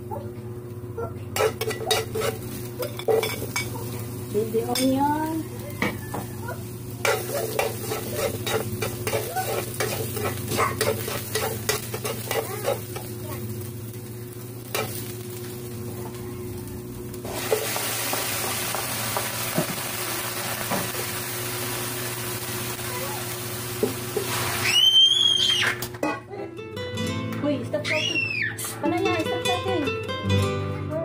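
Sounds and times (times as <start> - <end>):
onion and garlic frying in oil: 0.6 - 25.9
spatula clicking and scraping: 1.4 - 4.1, 7.0 - 13.1
chicken sizzling in hot pan: 1.4 - 25.6.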